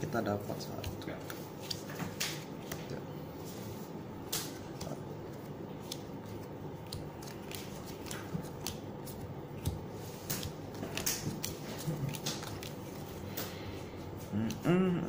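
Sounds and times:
low background hum: 0:00.0 - 0:15.0
cards snapping on playmat: 0:06.9 - 0:13.6.

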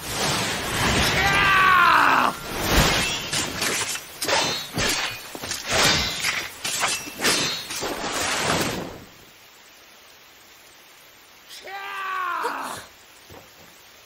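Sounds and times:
man screaming: 0:01.2 - 0:02.4, 0:11.6 - 0:12.9.

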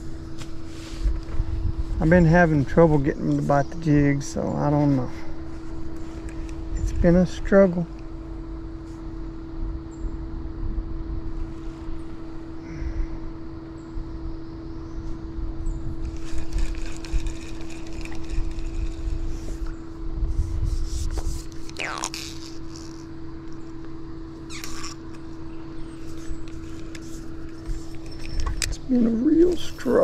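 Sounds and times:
wind rumbling on microphone: 0:00.0 - 0:22.5
small electric motor humming: 0:15.6 - 0:30.0.

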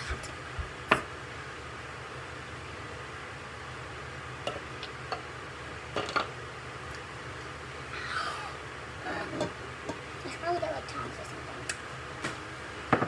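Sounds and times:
low room hum: 0:00.0 - 0:13.0.

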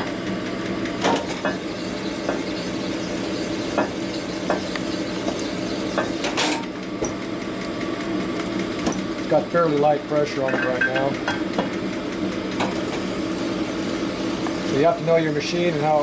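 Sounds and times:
motor hum: 0:00.0 - 0:09.6.

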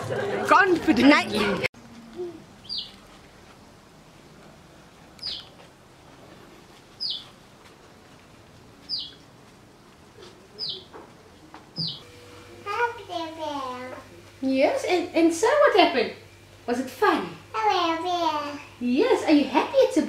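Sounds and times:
bird chirping: 0:02.6 - 0:03.0, 0:05.2 - 0:05.5, 0:07.0 - 0:07.3, 0:08.9 - 0:09.2, 0:10.5 - 0:11.0, 0:11.8 - 0:12.0.

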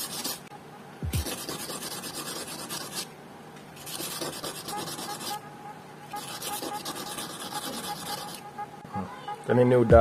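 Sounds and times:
glass rasping on sandpaper: 0:03.8 - 0:05.4, 0:06.2 - 0:08.4.

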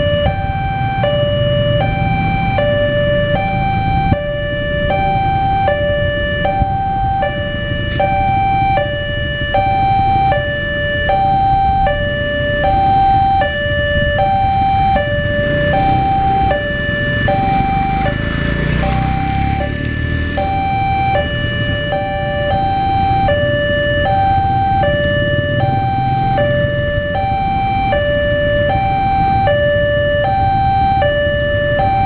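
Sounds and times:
engines idling: 0:00.0 - 0:32.0
two-tone crossing alarm: 0:00.0 - 0:32.0.

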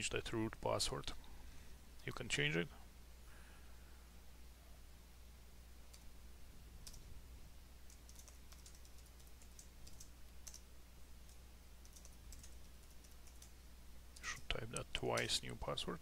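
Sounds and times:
low steady hum: 0:00.0 - 0:16.0
computer keyboard typing: 0:07.9 - 0:13.6, 0:14.2 - 0:15.4.

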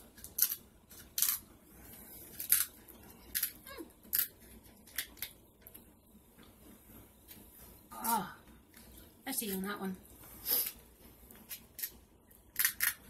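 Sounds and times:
crab shell crackling: 0:02.2 - 0:05.5.

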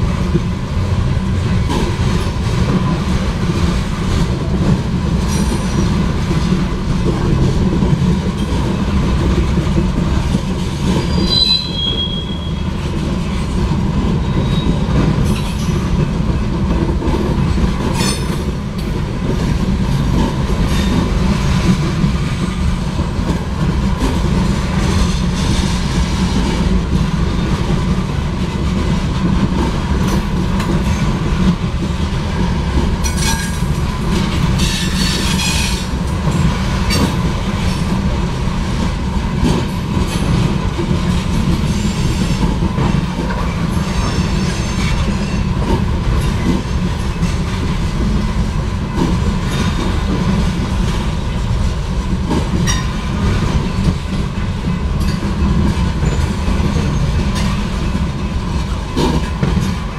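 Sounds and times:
freight train rumbling past: 0:00.0 - 0:59.9
high-pitched wheel squeal: 0:11.0 - 0:12.6.

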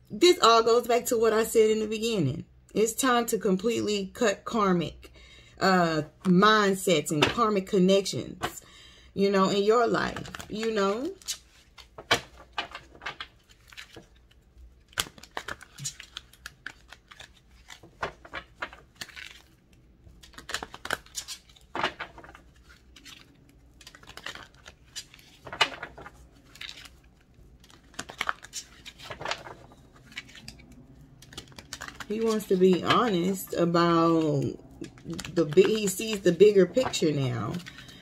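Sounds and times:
cards being shuffled: 0:10.0 - 0:38.0.

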